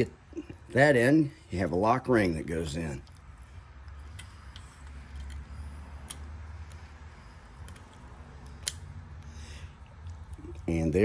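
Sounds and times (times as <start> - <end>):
metallic clicks and scrapes: 2.9 - 10.6.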